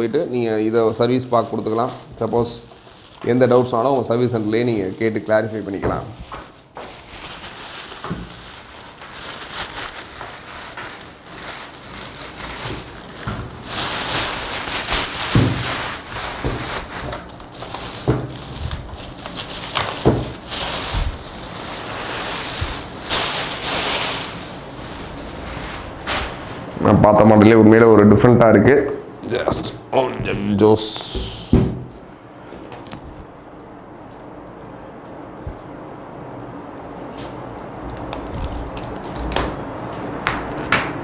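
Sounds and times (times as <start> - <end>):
plastic bag crinkling and rustling: 0.0 - 26.8, 38.0 - 40.6.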